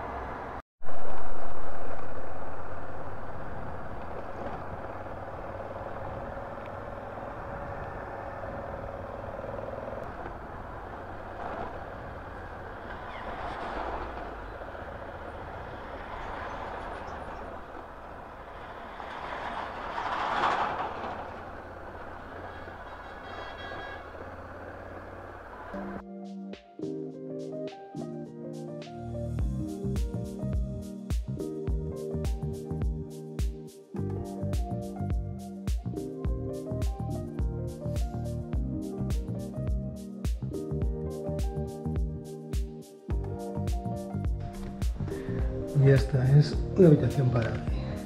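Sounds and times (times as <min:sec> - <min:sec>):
loud sudden vehicle sound: 0:00.0 - 0:26.0
vehicle running noise: 0:00.0 - 0:26.0, 0:29.0 - 0:48.0.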